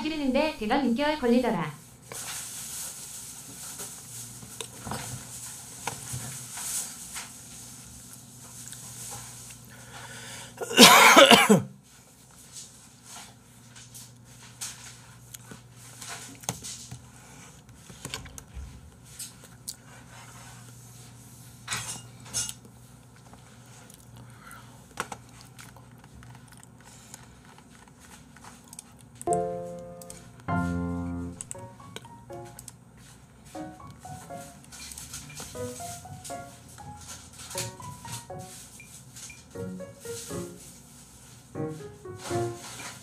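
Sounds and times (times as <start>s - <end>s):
keyboard keys clicking: 29.2s - 30.6s, 31.4s - 32.8s.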